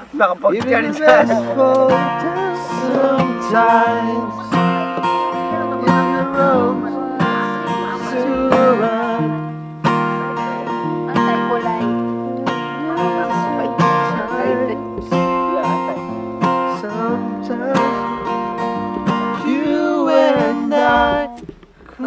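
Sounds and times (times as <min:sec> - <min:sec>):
acoustic guitar strumming chords: 0:00.0 - 0:22.0
person singing: 0:00.6 - 0:09.5, 0:11.7 - 0:18.2, 0:19.3 - 0:21.5.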